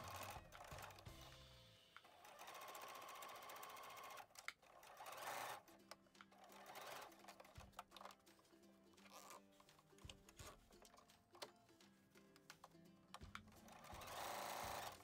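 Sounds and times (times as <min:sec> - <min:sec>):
sewing machine needle rattle: 0:06.4 - 0:08.2, 0:13.2 - 0:15.0.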